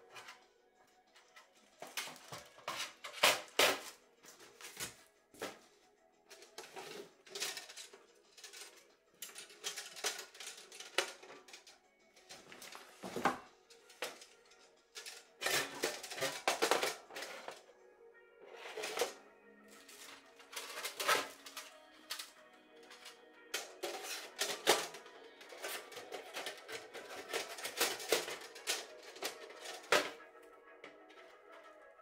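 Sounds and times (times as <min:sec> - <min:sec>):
background music: 0:00.0 - 0:32.0
metal stove parts clattering: 0:06.3 - 0:17.6, 0:18.6 - 0:19.2, 0:19.8 - 0:30.3.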